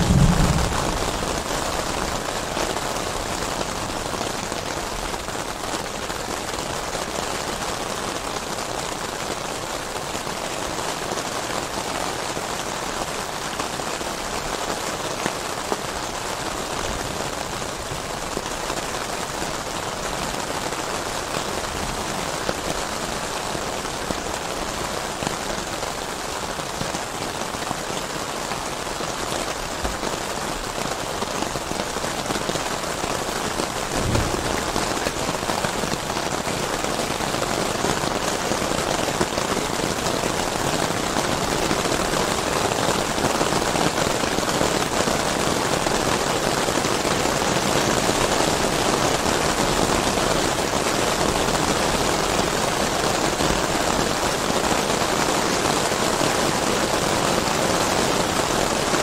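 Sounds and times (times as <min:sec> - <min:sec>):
low thump: 0:00.0 - 0:02.0, 0:33.9 - 0:35.3
heavy rain falling: 0:00.0 - 0:59.0.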